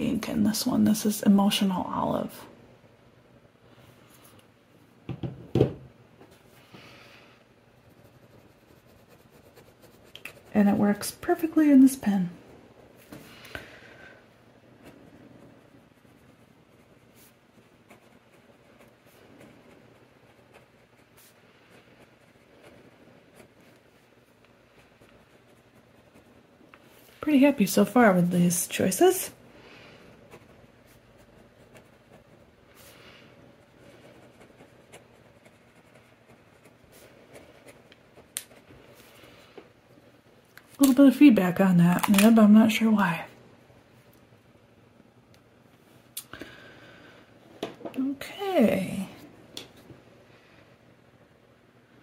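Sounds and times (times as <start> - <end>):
fountain pen scratching on paper: 7.8 - 11.4, 14.8 - 23.8, 24.7 - 26.4, 30.2 - 33.0, 33.6 - 38.7.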